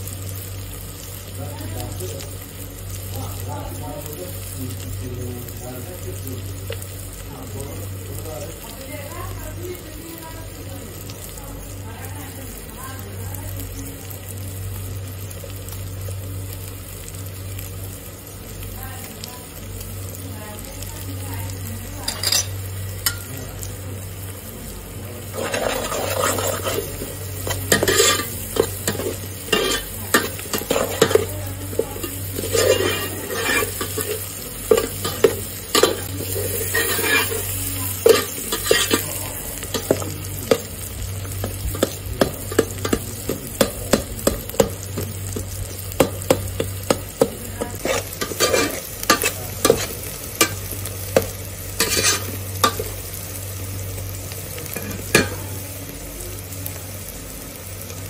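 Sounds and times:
food sizzling in oil: 0:00.0 - 0:58.0
metal spoon scraping a pot: 0:25.3 - 0:40.0, 0:46.9 - 0:52.8.

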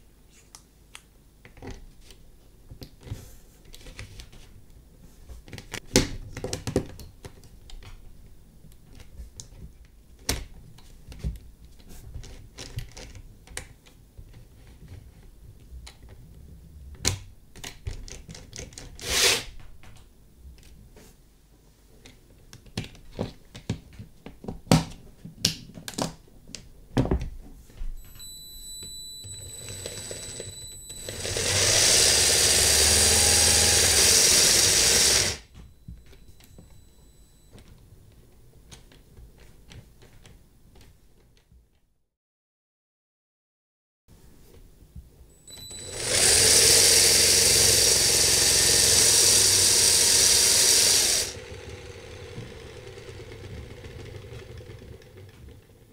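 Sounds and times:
electric motor running: 0:29.4 - 0:35.5, 0:45.5 - 0:55.8.

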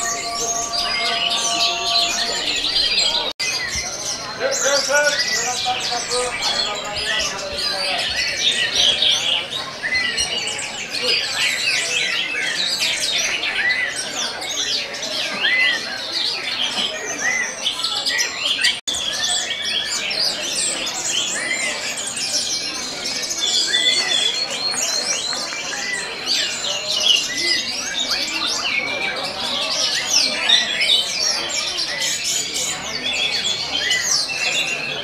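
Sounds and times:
thrushes singing: 0:00.0 - 0:11.7.

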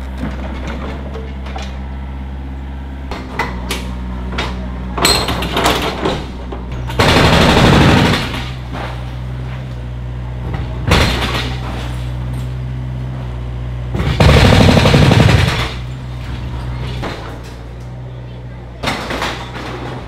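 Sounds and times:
excavator diesel engine running: 0:00.0 - 0:20.0
crashing and rattling demolition: 0:04.4 - 0:12.6, 0:13.9 - 0:17.8, 0:18.8 - 0:20.0.

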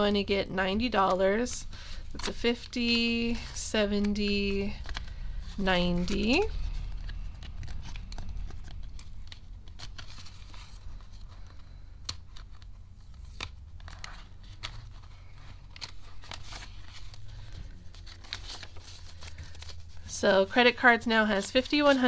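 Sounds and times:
paper banknotes rustling: 0:00.8 - 0:22.0
plastic envelope crinkling: 0:01.0 - 0:22.0.

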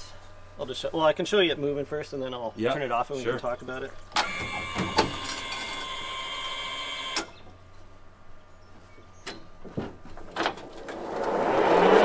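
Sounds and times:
electric drive whine: 0:03.4 - 0:09.0.

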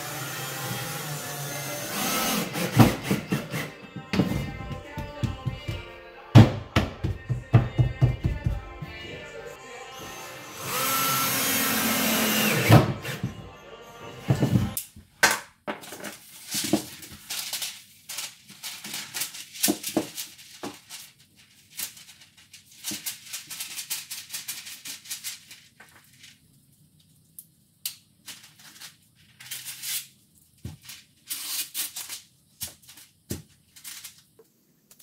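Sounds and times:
paper crinkling and rustling: 0:15.8 - 0:26.5, 0:28.2 - 0:34.4.

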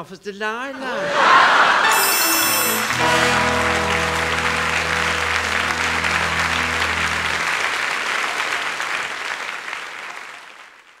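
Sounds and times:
held music chord: 0:00.8 - 0:08.7
audience applauding: 0:00.8 - 0:11.0.

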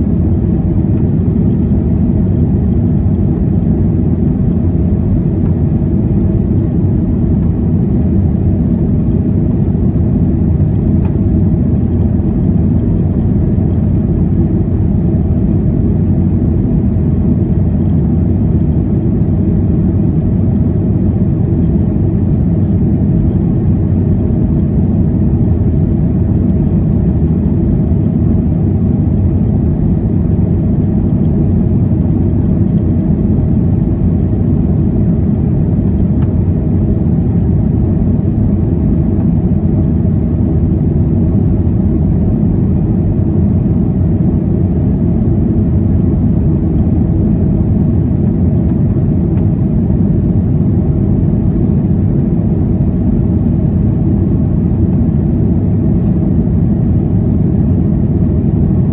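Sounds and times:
jet engines rumbling in cabin: 0:00.0 - 0:58.9.

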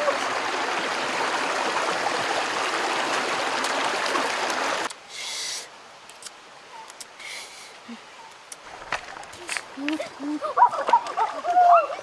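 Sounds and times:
rocky stream rushing: 0:00.0 - 0:05.0, 0:08.6 - 0:12.0.

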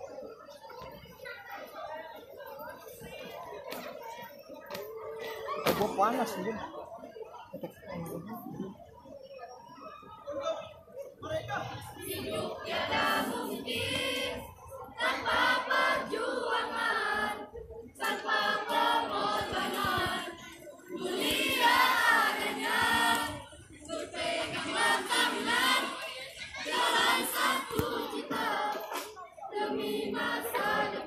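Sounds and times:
group singing in unison: 0:11.8 - 0:31.0.

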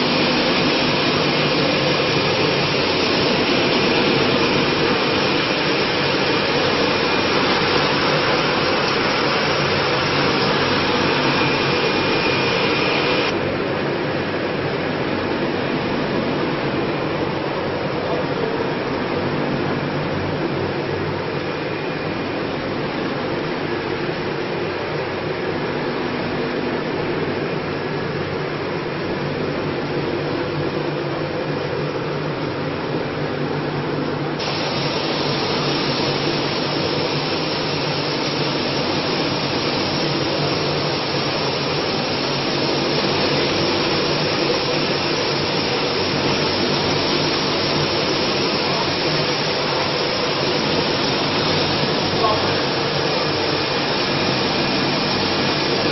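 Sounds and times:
steady machine tones: 0:00.0 - 0:13.6
machinery whirring hiss: 0:00.0 - 0:55.9.

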